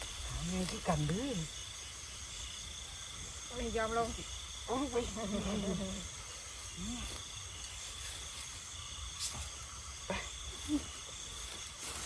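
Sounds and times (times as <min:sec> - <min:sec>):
night insects chirring: 0:00.0 - 0:12.0.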